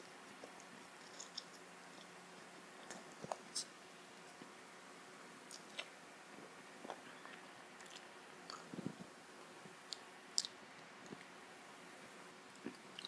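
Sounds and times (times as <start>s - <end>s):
person chewing with wet clicks: 0.3s - 2.2s, 5.5s - 5.9s, 6.8s - 8.7s, 9.9s - 11.3s, 12.5s - 13.0s.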